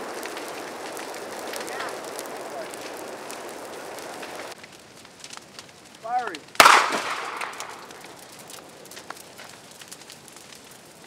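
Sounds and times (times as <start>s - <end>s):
pyrotechnic launcher bang: 6.6s - 7.7s.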